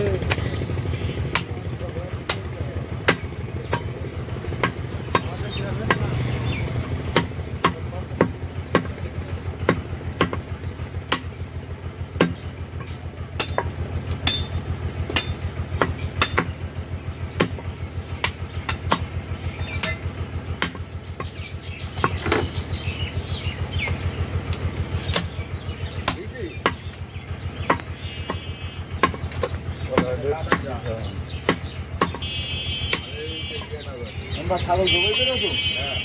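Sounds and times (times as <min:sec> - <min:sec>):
low engine throb: 0:00.0 - 0:36.0
cleaver chopping on wooden block: 0:01.3 - 0:01.6, 0:02.2 - 0:04.0, 0:04.6 - 0:06.2, 0:06.8 - 0:11.4, 0:12.2 - 0:14.5, 0:15.1 - 0:16.6, 0:18.2 - 0:19.1, 0:19.7 - 0:20.0, 0:20.6 - 0:21.3, 0:25.1 - 0:25.4, 0:26.0 - 0:32.3, 0:32.9 - 0:33.2.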